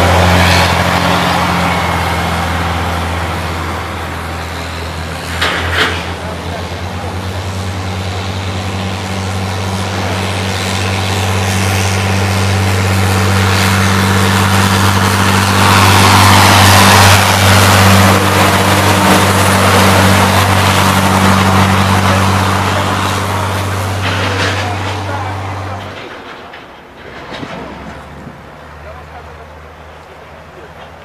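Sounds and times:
heavy vehicle engine drone: 0.0s - 31.0s.

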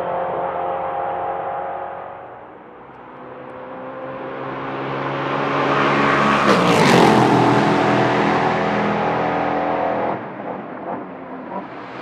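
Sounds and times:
race car engine passing by: 3.2s - 10.4s.

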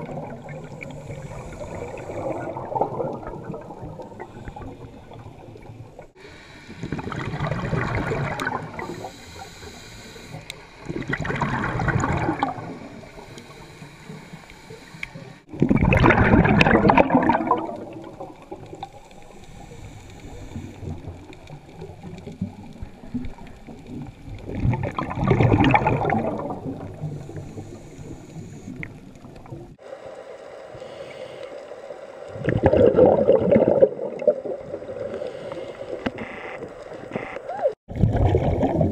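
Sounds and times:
bubbly diver exhalations: 10.9s - 12.8s, 15.5s - 18.6s, 24.5s - 27.0s, 32.4s - 35.7s, 37.9s - 38.9s.

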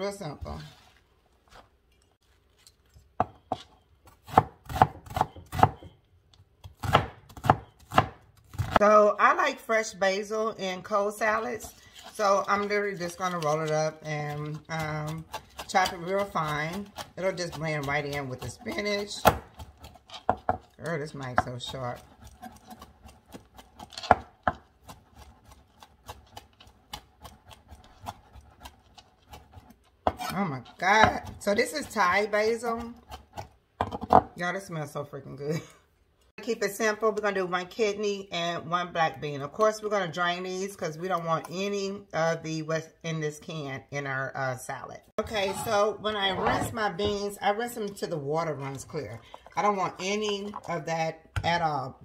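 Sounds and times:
knife chopping on cutting board: 3.2s - 5.9s, 6.7s - 8.8s
knife chopping onion on plastic board: 3.2s - 6.0s, 6.6s - 8.8s, 14.4s - 20.7s, 21.3s - 34.3s.

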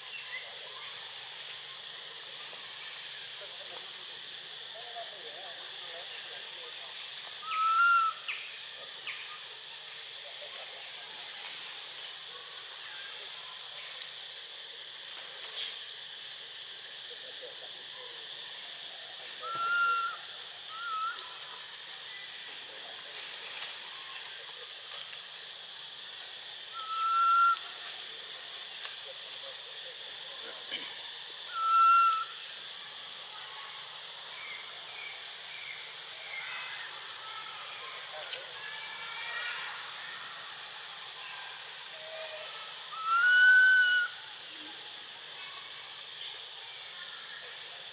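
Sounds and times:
insects droning: 0.0s - 47.9s
steady high hiss: 0.0s - 47.9s
monkey coo call: 7.4s - 8.4s, 19.2s - 21.7s, 26.7s - 27.8s, 30.6s - 32.5s, 41.8s - 44.5s.

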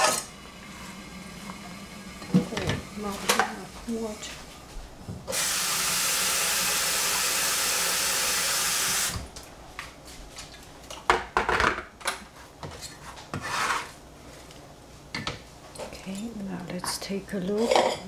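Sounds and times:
kitchen tap running: 0.0s - 3.6s, 5.3s - 9.3s
knocks and scrapes: 12.6s - 14.0s.

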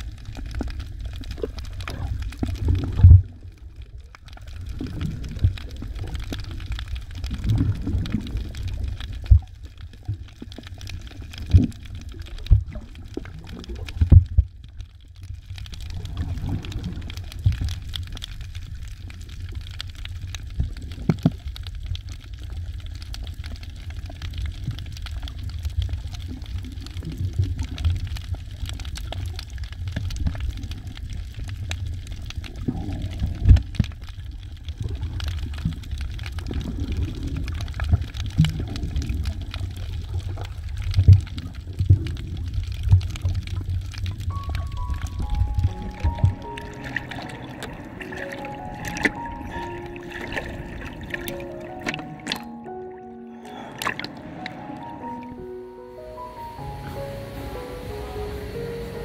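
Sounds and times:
clicks and crackles: 0.0s - 52.7s
muffled underwater rumble: 0.0s - 55.4s.

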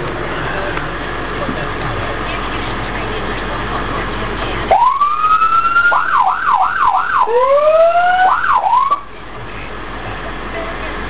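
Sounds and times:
vehicle cabin noise: 0.0s - 11.0s
electronic siren yelp sweeps: 4.7s - 9.0s
lower rising siren tone: 4.7s - 9.0s.

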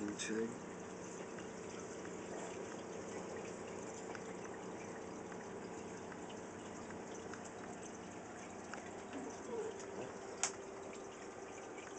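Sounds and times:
aquarium water trickling and bubbling: 0.0s - 11.9s
faint light ticks: 3.7s - 7.8s.

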